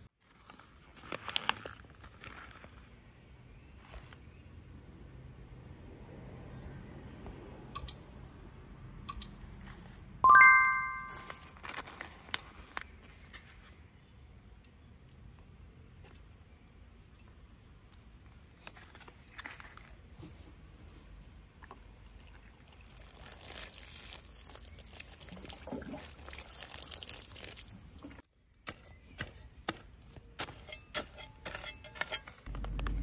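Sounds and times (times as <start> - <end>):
sharp clicks: 7.8 - 8.0, 9.1 - 9.3.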